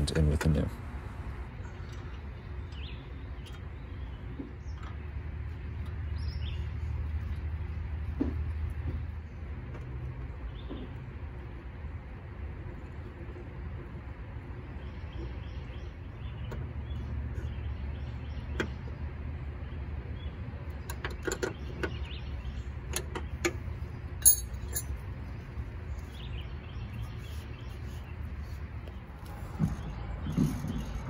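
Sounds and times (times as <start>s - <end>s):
low background rumble: 0.0s - 31.0s
hand tools clinking on metal fittings: 24.2s - 25.0s.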